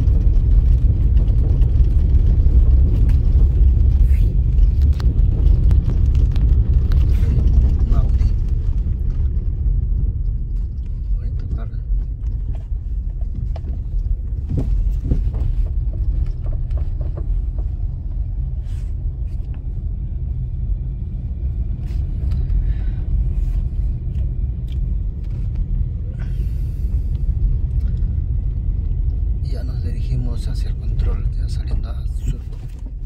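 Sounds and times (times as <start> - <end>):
small clicks and rattles: 0.0 - 18.3
car driving heard from inside: 0.0 - 33.0.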